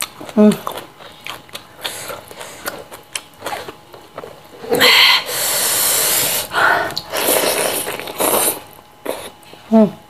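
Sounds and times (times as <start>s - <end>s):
chewing: 0.0s - 4.4s, 6.9s - 9.6s
hissing breath drawn in: 4.8s - 6.9s.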